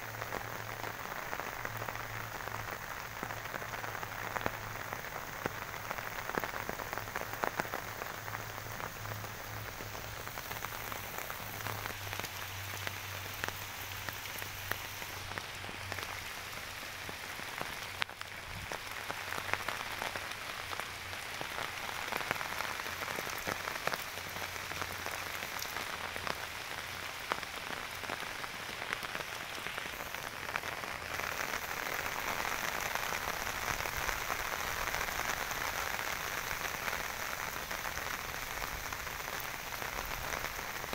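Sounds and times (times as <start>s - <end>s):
heavy rain on water and plants: 0.0s - 40.9s.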